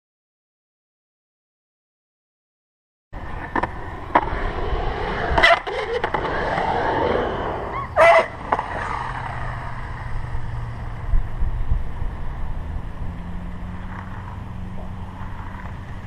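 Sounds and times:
skateboard wheels rolling on concrete: 0:03.2 - 0:16.0
skateboard clacking on concrete: 0:08.0 - 0:10.0, 0:13.7 - 0:14.4, 0:15.2 - 0:16.0.

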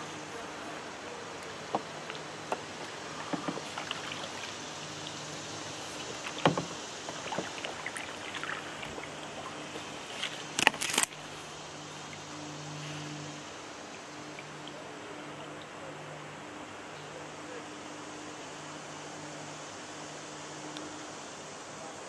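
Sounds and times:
river hiss: 0:00.0 - 0:22.0
paddle knocking canoe hull: 0:01.4 - 0:10.0.

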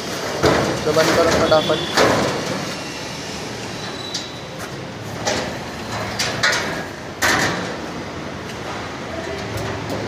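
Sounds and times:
metal door knocks and clicks: 0:00.4 - 0:02.5.

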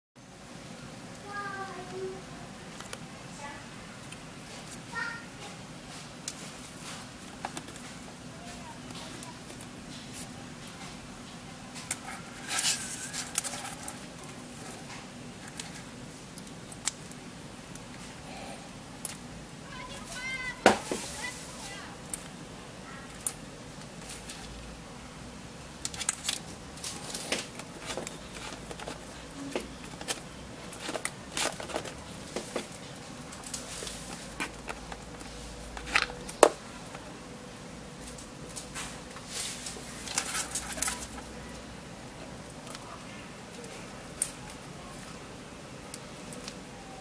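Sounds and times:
cables rustling: 0:04.0 - 0:18.4, 0:25.8 - 0:37.1, 0:38.0 - 0:41.7.

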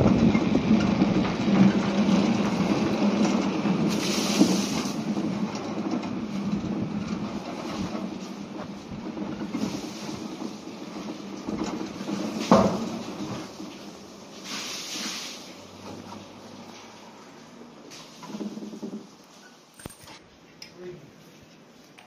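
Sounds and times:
funicular carriage rumbling on rails: 0:00.0 - 0:14.6, 0:15.4 - 0:19.7
short hiss: 0:14.4 - 0:15.5.

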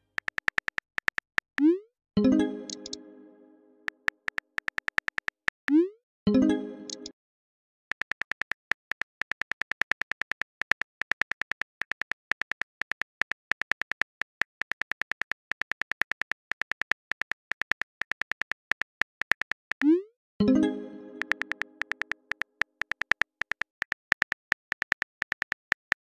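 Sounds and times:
smartphone keyboard clicks: 0:00.0 - 0:01.6, 0:02.7 - 0:03.0, 0:03.9 - 0:05.6, 0:07.9 - 0:19.8, 0:21.2 - 0:26.0.

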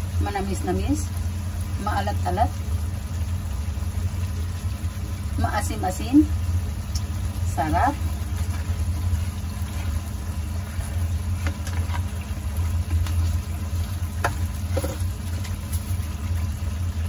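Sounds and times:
low machine hum: 0:00.0 - 0:17.0
sauce simmering with faint pops: 0:00.0 - 0:17.0.

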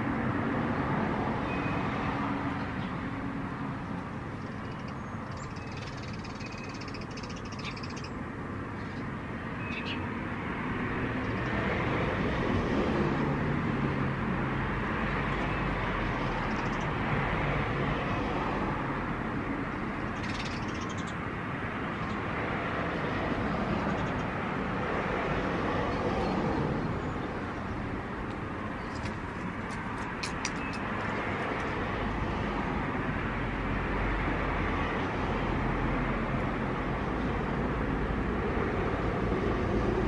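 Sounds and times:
outdoor background rumble: 0:00.0 - 0:40.0
faint high bird chirps: 0:04.4 - 0:08.2, 0:09.6 - 0:10.0.

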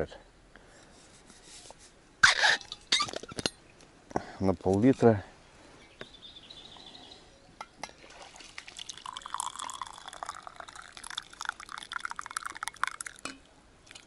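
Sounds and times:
coffee pouring into a mug: 0:08.0 - 0:14.0.

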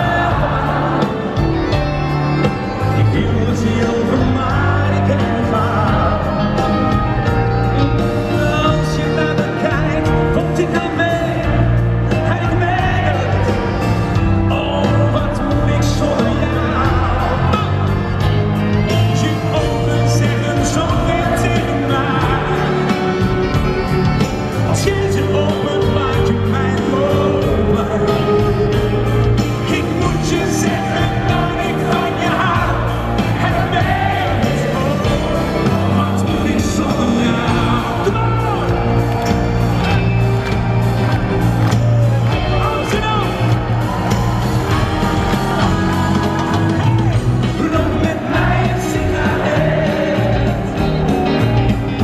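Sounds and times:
band playing with beat and bass: 0:00.0 - 0:52.0
man singing live: 0:00.0 - 0:52.0.

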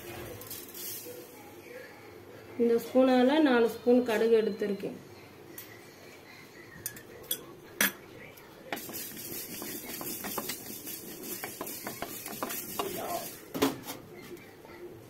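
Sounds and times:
spoon scraping seeds in pan: 0:08.7 - 0:13.5.

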